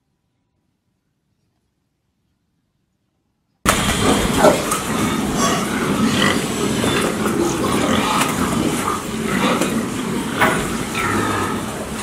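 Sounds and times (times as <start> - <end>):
pigs grunting and squealing: 3.7 - 12.0.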